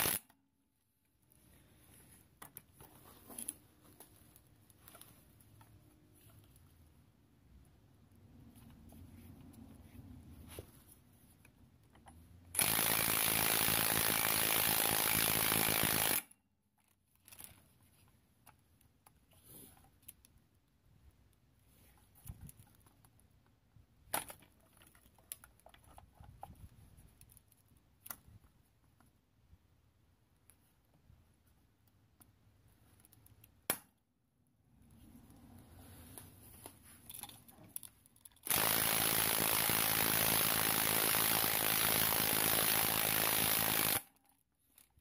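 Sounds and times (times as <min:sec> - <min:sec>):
impact wrench running: 0:00.0 - 0:00.2, 0:12.6 - 0:16.3, 0:38.4 - 0:44.1
metal parts clicking and scraping: 0:37.0 - 0:38.5.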